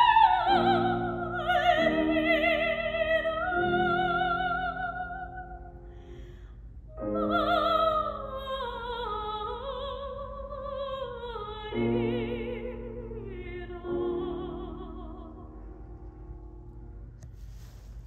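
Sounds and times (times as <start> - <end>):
soprano singing with vibrato: 0.0 - 5.8, 6.9 - 15.6
grand piano accompaniment: 0.0 - 6.0, 6.9 - 17.4.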